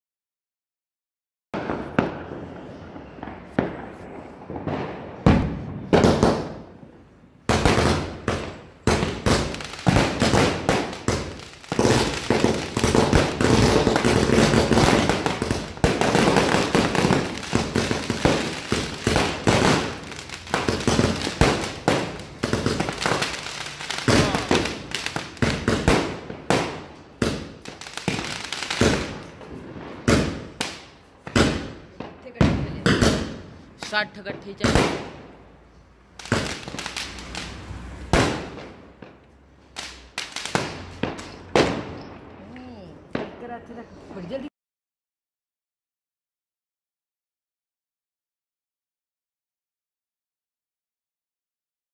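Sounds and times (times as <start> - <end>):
firework cake firing: 7.5 - 35.3, 36.2 - 42.5.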